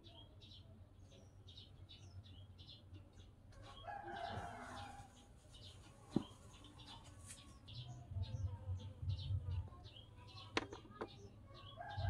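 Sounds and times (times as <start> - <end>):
small birds chirping: 0.0 - 12.0
rooster crowing: 3.8 - 5.1.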